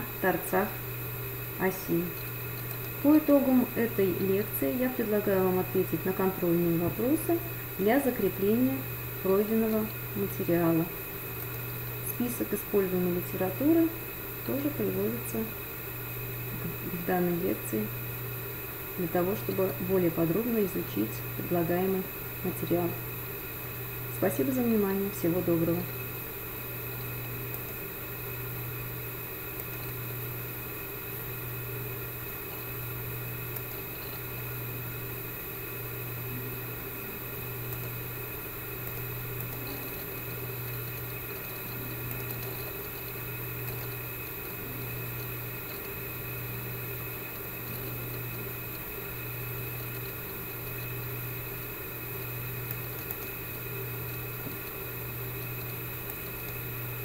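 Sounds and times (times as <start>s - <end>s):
faint high whine: 0.0s - 57.0s
low mechanical hum with throb: 0.0s - 57.0s.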